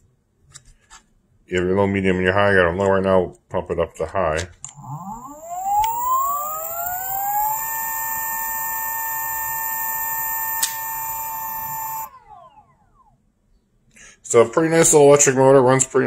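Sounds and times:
electric motor whine: 4.7s - 12.8s.

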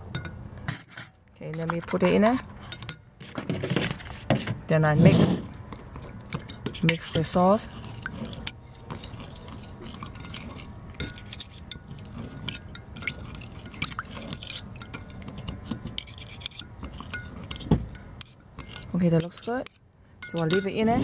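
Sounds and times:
spoon scraping and clicking on glass: 5.7s - 20.8s.

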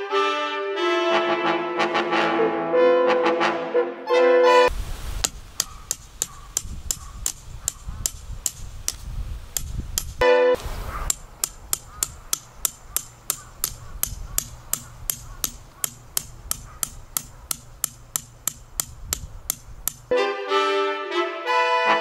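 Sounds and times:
brass music: 0.0s - 4.7s, 10.2s - 10.6s, 20.1s - 22.0s
hammer striking metal peg: 5.2s - 10.3s, 11.1s - 20.1s.

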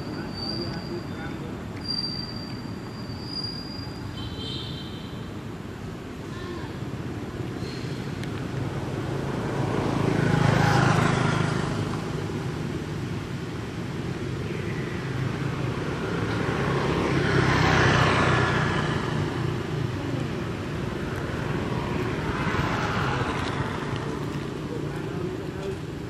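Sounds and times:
road vehicles passing: 0.0s - 26.0s.

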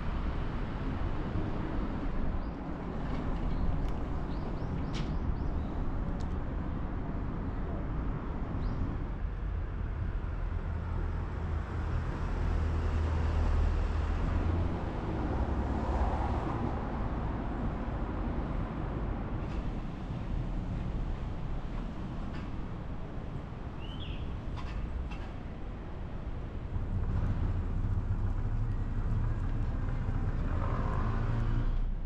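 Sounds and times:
distant traffic rumble: 11.6s - 32.0s.

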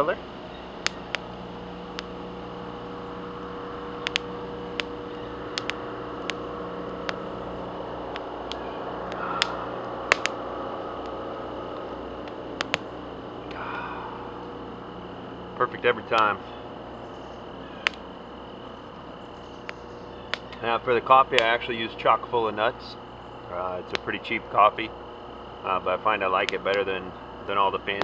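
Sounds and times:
campfire crackling and popping: 0.0s - 28.0s
steady low hum: 0.0s - 28.0s
person sipping coffee: 9.1s - 10.0s, 13.4s - 14.7s.

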